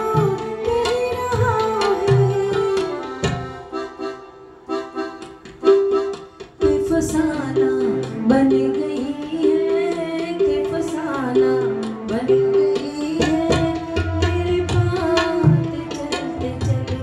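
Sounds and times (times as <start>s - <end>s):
tabla strokes: 0.0s - 4.0s, 4.9s - 17.0s
woman singing into a microphone: 0.0s - 4.1s, 6.6s - 17.0s
electronic keyboard melody: 3.7s - 6.8s.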